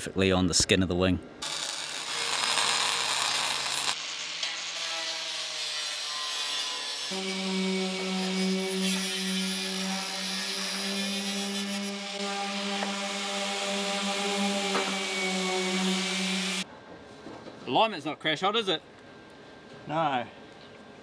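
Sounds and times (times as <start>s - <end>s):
angle grinder grinding steel: 1.4s - 16.6s.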